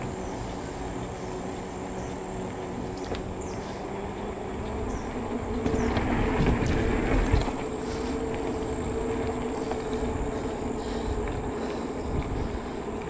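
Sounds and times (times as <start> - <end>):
electric bike motor hum: 0.0 - 13.0
wind and tyre rush: 0.0 - 13.0
wheels knocking on wooden bridge: 4.6 - 10.3.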